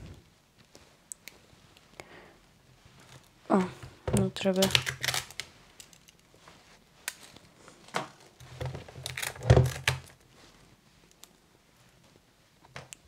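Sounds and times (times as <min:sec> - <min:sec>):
plastic clicks and rustles: 0:04.2 - 0:06.2, 0:07.1 - 0:10.2.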